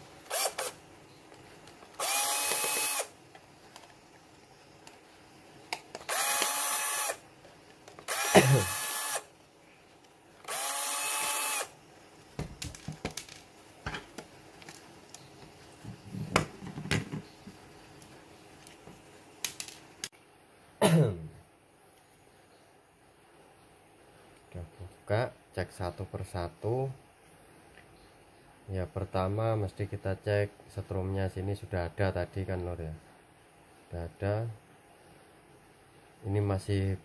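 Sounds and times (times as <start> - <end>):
power screwdriver whining: 0.3 - 0.8, 2.0 - 3.1, 6.0 - 7.2, 8.1 - 9.3, 10.4 - 11.7.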